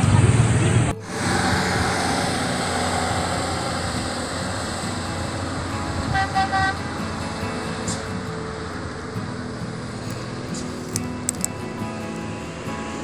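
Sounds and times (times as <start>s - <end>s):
road traffic: 0.0s - 13.0s
vehicle horn short toots: 6.1s - 6.9s.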